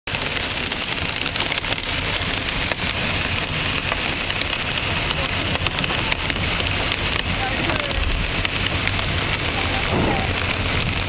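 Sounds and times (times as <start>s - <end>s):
hail and rain on car roof: 0.1s - 11.0s.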